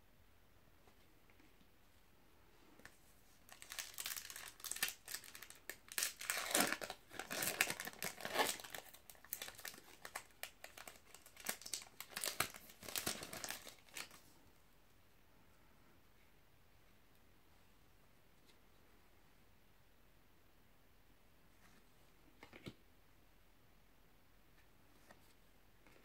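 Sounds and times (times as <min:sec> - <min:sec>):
foil wrapper tearing and crinkling: 0:03.5 - 0:14.2.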